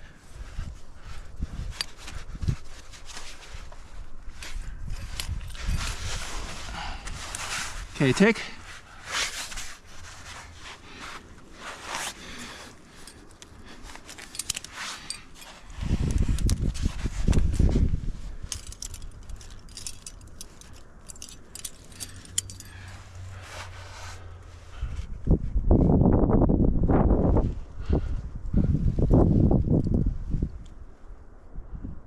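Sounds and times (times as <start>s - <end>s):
climbing gear jangling: 4.3s - 8.7s, 12.5s - 23.7s
low rumble on microphone: 22.1s - 32.0s.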